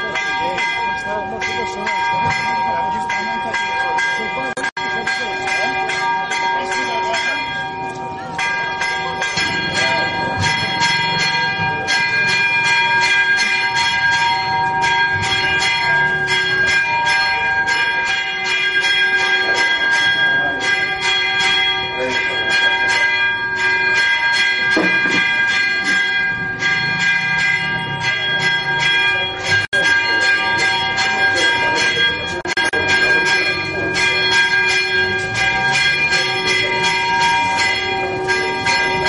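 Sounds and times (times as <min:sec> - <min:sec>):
church bells ringing a peal: 0:00.0 - 0:39.0.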